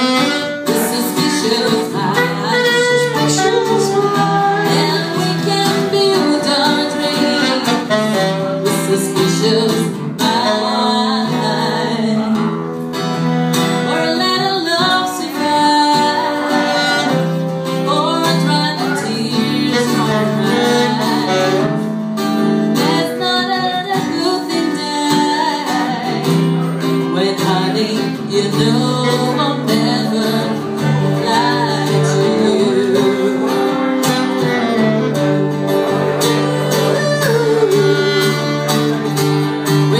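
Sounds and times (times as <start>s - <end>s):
saxophone: 0.0s - 39.9s
strummed acoustic guitar: 0.0s - 39.9s
woman singing: 0.0s - 39.9s.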